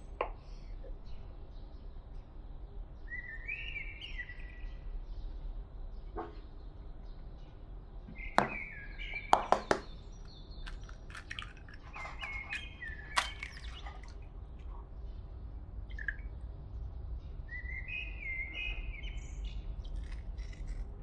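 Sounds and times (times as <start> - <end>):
birds chirping: 0.0 - 21.0
eggs knocking against glass bowl: 9.3 - 10.0, 10.7 - 14.1.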